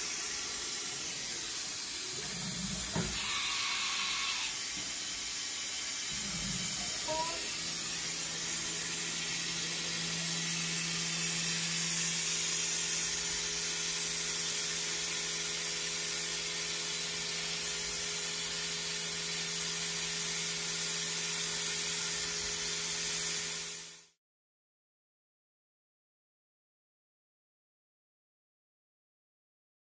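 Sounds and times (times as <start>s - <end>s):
end mill cutting hiss: 0.0s - 9.9s
milling machine spindle humming: 0.0s - 23.9s.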